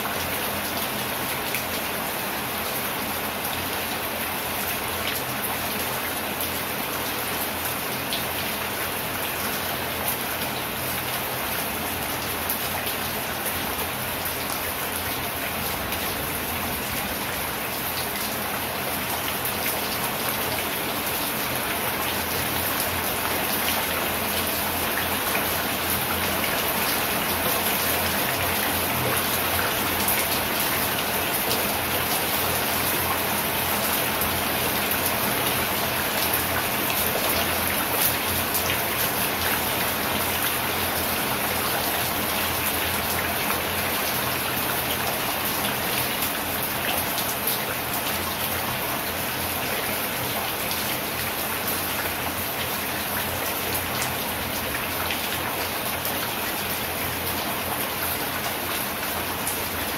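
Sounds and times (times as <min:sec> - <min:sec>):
steady rain: 0:00.0 - 0:59.9.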